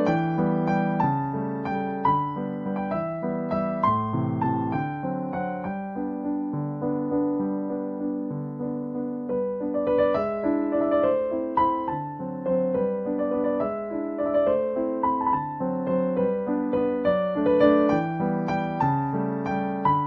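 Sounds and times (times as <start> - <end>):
gentle piano music: 0.0 - 20.0.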